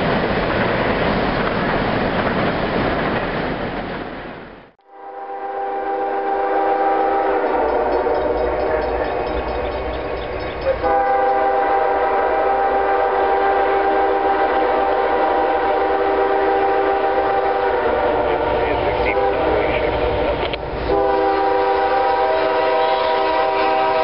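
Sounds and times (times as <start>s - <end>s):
locomotive air horn chord: 4.8s - 9.7s, 10.6s - 20.3s, 20.9s - 24.0s.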